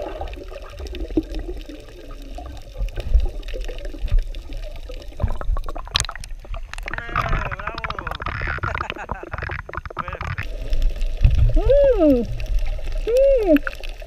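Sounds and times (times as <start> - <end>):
water sloshing and splashing: 0.0 - 14.0.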